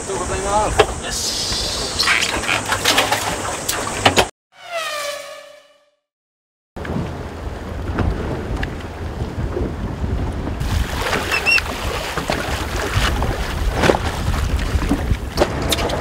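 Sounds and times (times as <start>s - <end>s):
water splashing against hull: 1.6s - 4.1s, 10.6s - 16.0s
wind buffeting microphone: 6.8s - 16.0s.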